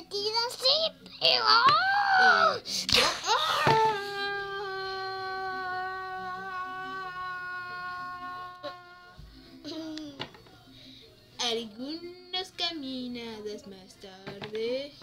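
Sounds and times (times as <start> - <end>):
child exclaiming: 0.6 - 2.6
child's long cry: 1.6 - 2.6, 3.3 - 9.2.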